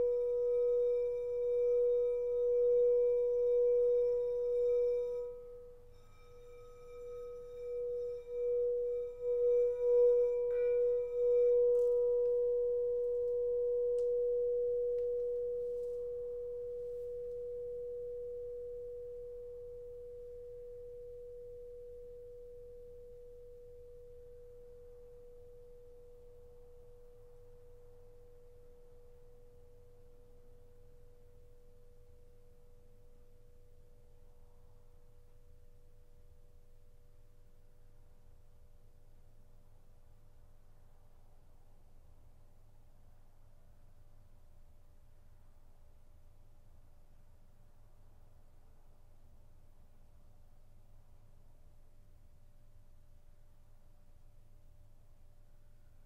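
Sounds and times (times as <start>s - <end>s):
singing bowl ringing steady tone: 0.0s - 37.3s.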